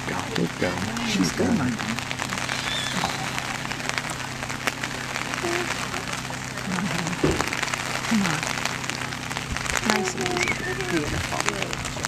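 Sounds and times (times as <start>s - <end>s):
faint distant voices: 0.0s - 12.0s
low hum: 0.0s - 12.0s
steady hiss: 0.0s - 12.0s.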